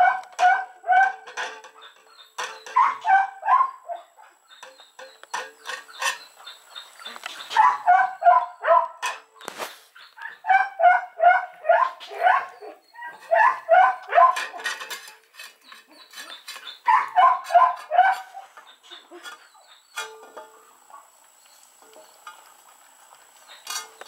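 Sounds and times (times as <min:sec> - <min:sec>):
puppy whining yips: 0:02.6 - 0:04.1.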